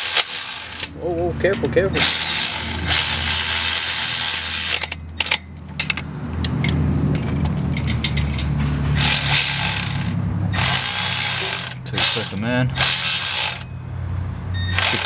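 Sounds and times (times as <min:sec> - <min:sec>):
metallic tool clicks: 0:04.6 - 0:13.7.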